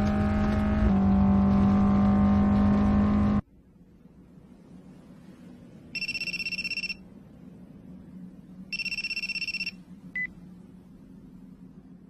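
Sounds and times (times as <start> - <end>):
mobile phone ringing: 6.0 - 7.0, 8.7 - 10.3
short phone beep: 6.0 - 7.0, 8.7 - 10.3.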